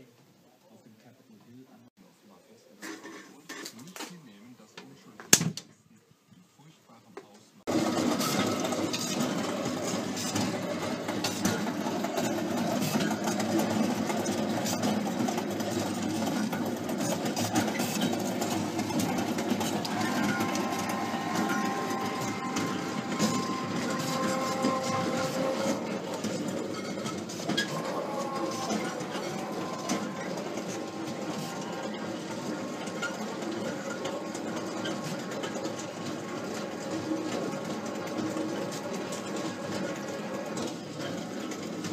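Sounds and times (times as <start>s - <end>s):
coffee roaster burner and drum: 7.7s - 41.9s
electric motor whine: 19.4s - 26.5s, 27.6s - 33.1s.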